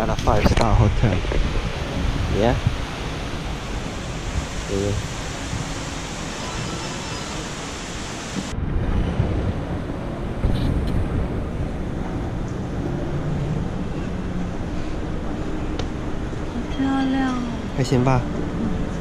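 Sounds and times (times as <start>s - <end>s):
wind rumble on microphone: 0.0s - 19.0s
rushing hiss: 2.4s - 8.5s
microphone handling noise: 10.4s - 11.1s.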